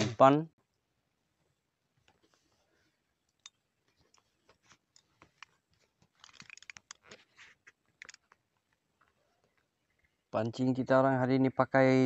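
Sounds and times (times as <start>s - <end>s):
faint scratchy clicks and crackles: 2.0s - 10.2s.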